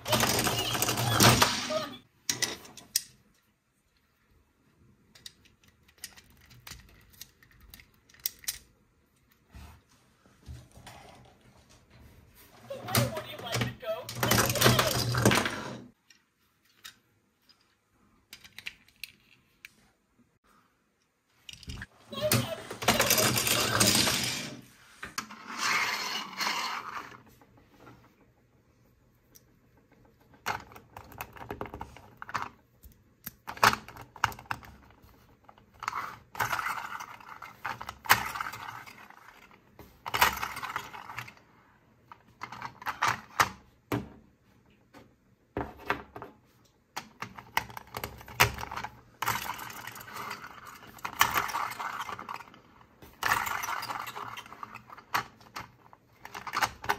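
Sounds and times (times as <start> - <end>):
plastic toy pieces clicking: 5.1 - 8.7, 18.3 - 19.4.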